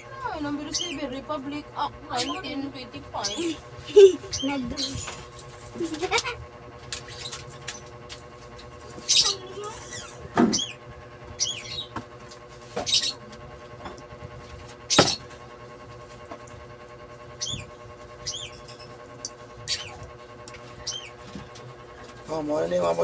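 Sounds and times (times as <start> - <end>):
high chirping squeaks: 0.6 - 1.2, 3.1 - 3.6, 4.2 - 5.2, 9.0 - 10.8, 11.4 - 12.0, 12.8 - 13.2, 17.4 - 19.0, 19.6 - 20.1, 20.7 - 21.3.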